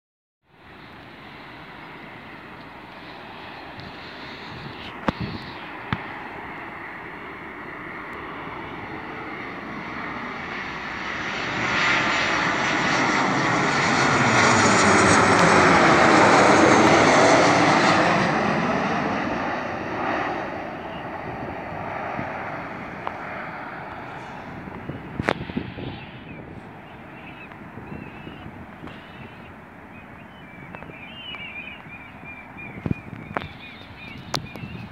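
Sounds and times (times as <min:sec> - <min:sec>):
jet airliner passing overhead: 0:00.5 - 0:34.9.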